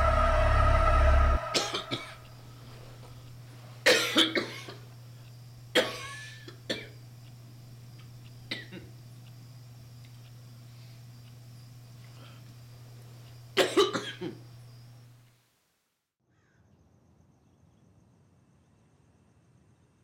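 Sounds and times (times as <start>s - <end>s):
man coughing: 13.6s - 14.4s.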